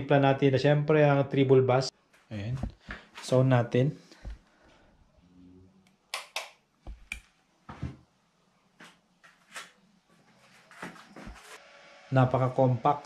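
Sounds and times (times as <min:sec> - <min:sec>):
footsteps on wooden floor: 0:02.5 - 0:03.0, 0:04.2 - 0:04.4, 0:10.7 - 0:11.6.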